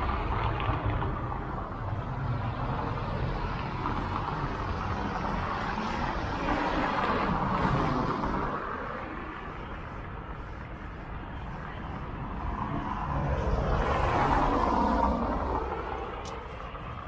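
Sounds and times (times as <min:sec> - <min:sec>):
low traffic rumble: 0:00.0 - 0:17.0
vehicle driving past: 0:00.0 - 0:17.0.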